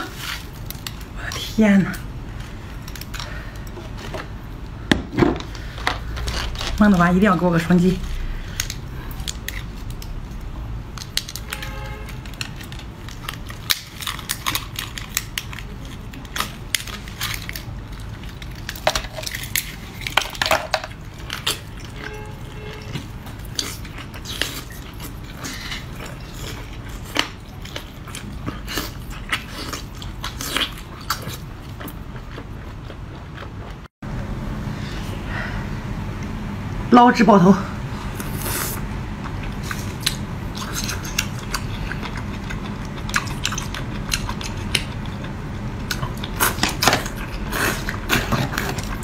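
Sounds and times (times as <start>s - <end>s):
person chewing food: 12.0s - 20.3s, 20.9s - 33.9s, 38.1s - 49.0s.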